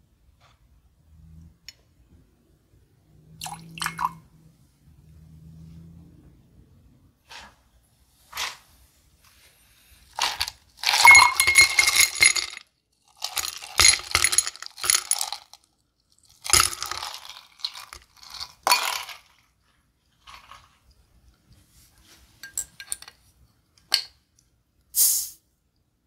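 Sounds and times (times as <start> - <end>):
ice cubes clinking in glass: 10.2 - 15.6, 16.2 - 19.4.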